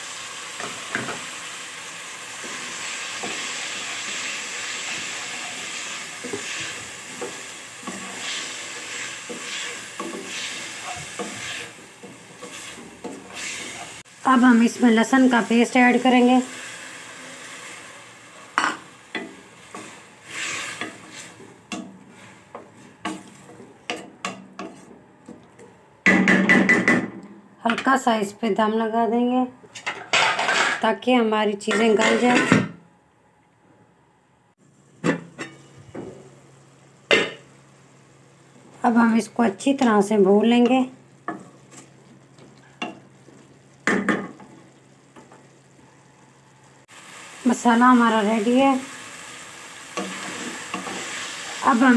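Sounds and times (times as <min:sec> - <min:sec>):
light sizzle: 0:00.0 - 0:26.2, 0:34.5 - 0:51.9
spatula scraping metal pan: 0:02.4 - 0:14.0, 0:19.7 - 0:21.4, 0:31.7 - 0:32.6.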